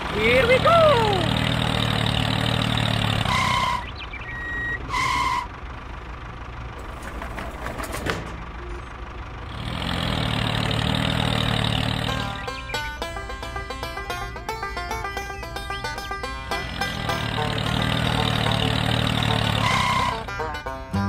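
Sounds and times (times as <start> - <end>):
tractor engine idling: 0.0 - 21.0
short beeps: 4.3 - 4.8.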